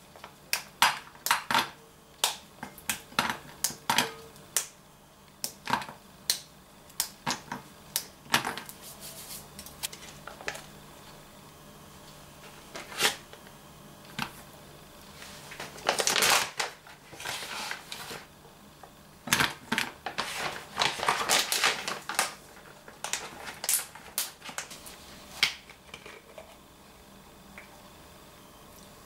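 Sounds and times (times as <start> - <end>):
wrappers crinkling and rustling: 15.0 - 18.3, 19.3 - 25.6.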